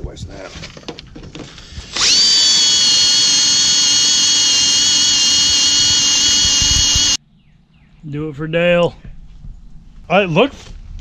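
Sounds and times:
cordless drill boring into metal: 1.6s - 7.2s.

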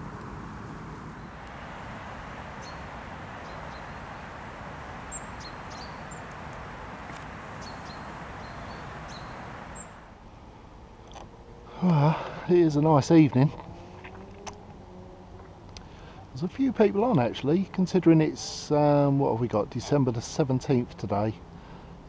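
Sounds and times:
steady low rush: 0.0s - 10.2s
short high bird chirps: 2.5s - 6.5s, 7.5s - 10.0s.

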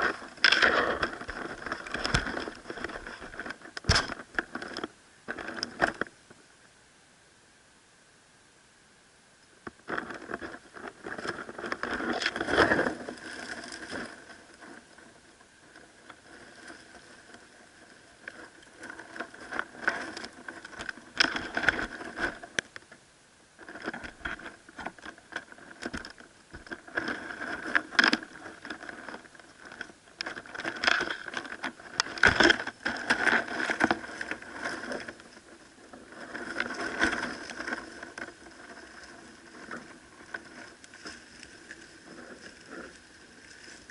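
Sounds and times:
claws scraping on plastic: 0.0s - 6.1s, 23.6s - 43.9s
rustling dry leaves: 0.0s - 6.4s, 9.6s - 23.0s, 23.6s - 43.9s.

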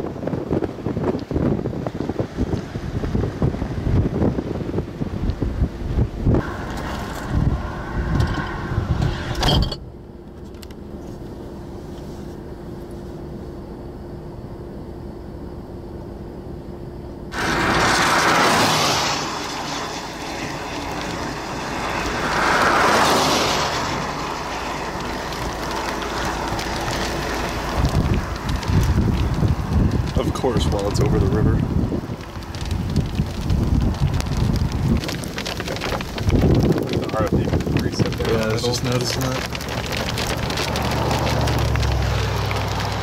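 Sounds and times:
wind gusting on microphone: 0.0s - 9.8s, 17.3s - 43.0s
vehicles passing: 6.2s - 12.3s, 17.3s - 43.0s.

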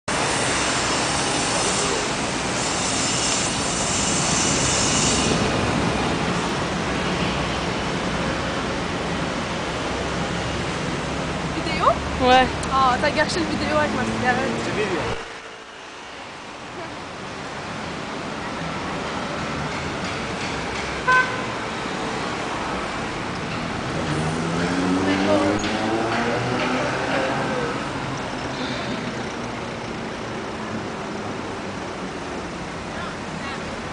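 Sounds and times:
city street traffic: 0.0s - 33.9s
car horn toot: 21.0s - 21.6s.

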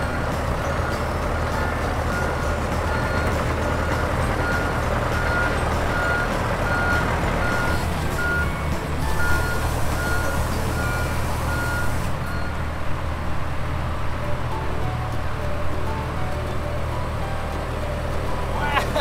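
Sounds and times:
reversing alarm beeping: 0.0s - 12.6s
engine humming: 0.0s - 19.0s.

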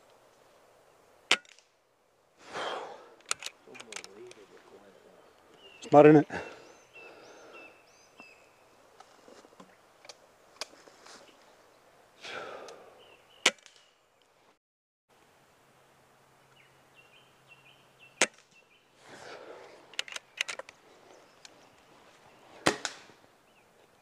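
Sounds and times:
light clicks: 3.2s - 4.5s
air rifle shots: 22.6s - 23.1s.

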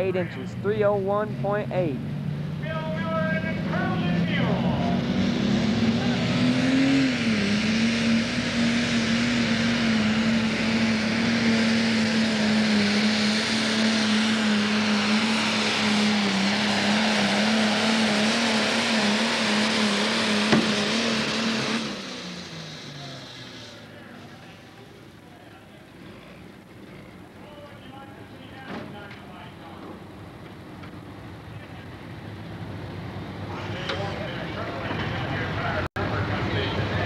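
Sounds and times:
diesel engine droning under load: 0.0s - 37.0s.

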